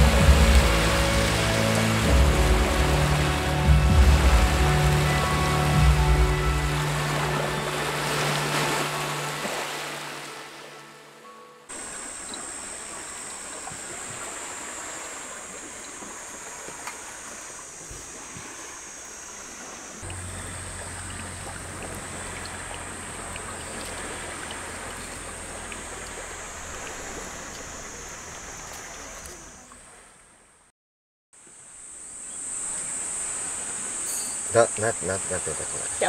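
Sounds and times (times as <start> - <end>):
thin high-pitched drone: 0.0 - 13.7, 34.0 - 34.7
low hum: 0.0 - 14.0, 20.0 - 29.7
small waves on the shore: 0.0 - 30.7, 31.4 - 36.0.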